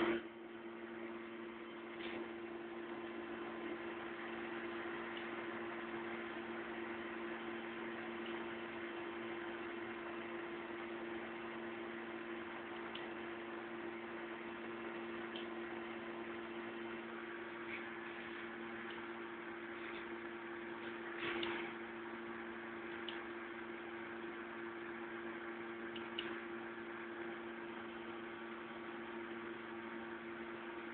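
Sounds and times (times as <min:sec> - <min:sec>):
low two-tone hum: 0:00.0 - 0:30.9
faint clicks: 0:25.9 - 0:26.4.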